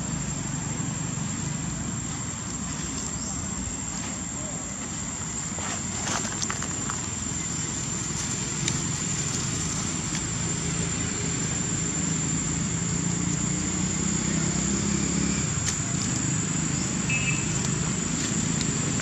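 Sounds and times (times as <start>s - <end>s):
distant engine hum: 0.0s - 19.0s.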